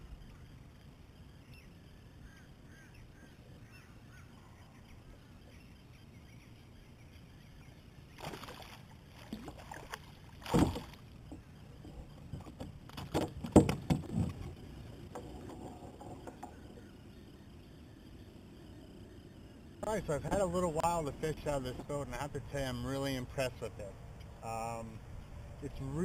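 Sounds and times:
knocks against boat: 10.4s - 11.5s, 12.3s - 14.5s.

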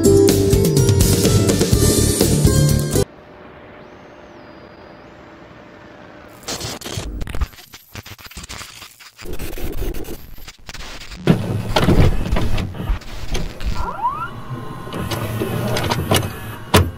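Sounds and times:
glitchy static crackling: 3.2s - 14.3s.

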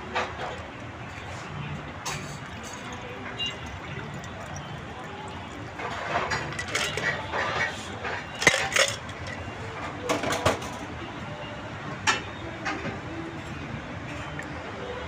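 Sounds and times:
metal bar tools clinking: 5.8s - 7.7s, 8.3s - 9.4s.

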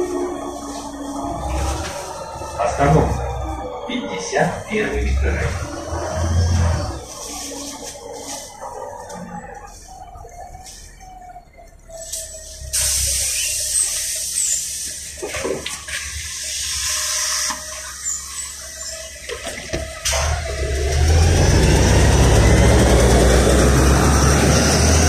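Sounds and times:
bus engine rumbling: 0.0s - 25.0s
air hissing: 12.1s - 15.2s.

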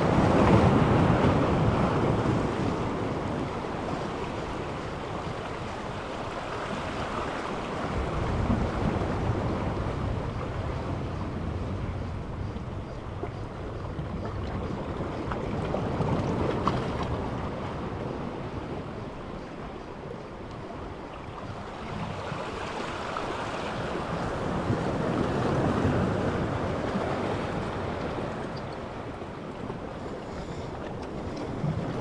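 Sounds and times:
waves washing on rocky shore: 0.0s - 11.7s
wind buffeting microphone: 0.0s - 32.0s.

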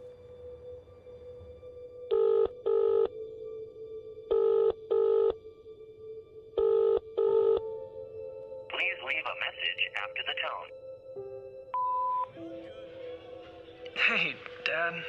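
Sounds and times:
telephone ringing tone: 2.1s - 3.1s, 4.3s - 5.4s, 6.6s - 7.6s.

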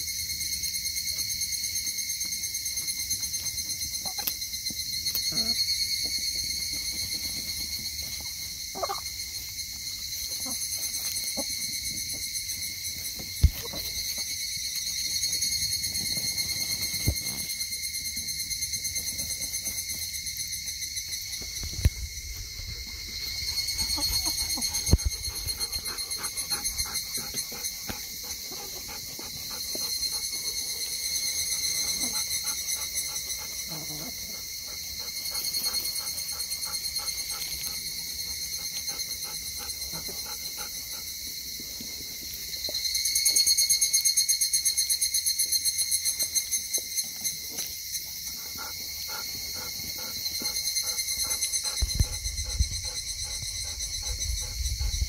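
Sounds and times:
insects shrilling: 0.2s - 40.8s.

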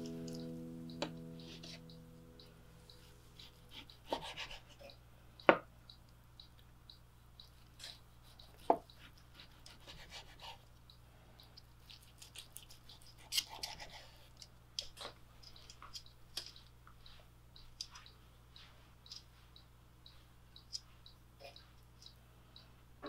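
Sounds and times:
knife cutting steak: 3.4s - 4.7s, 9.3s - 10.6s.

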